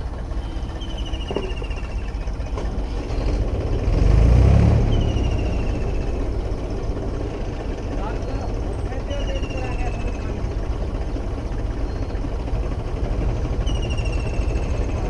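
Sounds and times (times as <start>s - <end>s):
tractor engine running under load: 0.0s - 15.0s.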